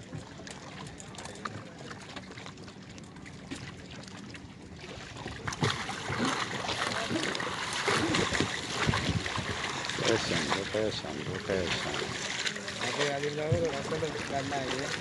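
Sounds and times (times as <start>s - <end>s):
water lapping and splashing: 0.0s - 15.0s
wooden boats knocking: 5.2s - 15.0s.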